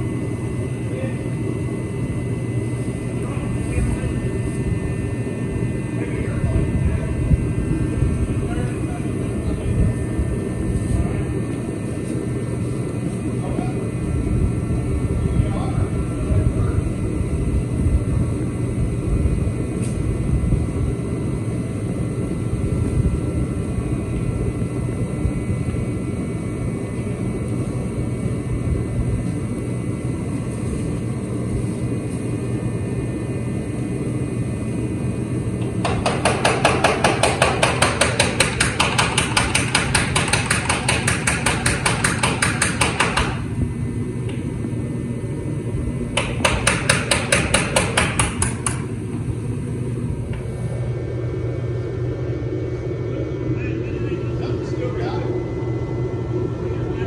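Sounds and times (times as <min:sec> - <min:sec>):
rapid hammer blows on metal: 0:35.8 - 0:43.5, 0:46.2 - 0:48.8.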